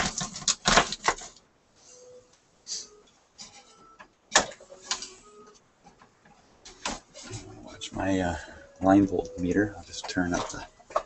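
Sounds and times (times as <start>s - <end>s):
handling clicks and rustles: 3.4s - 11.0s.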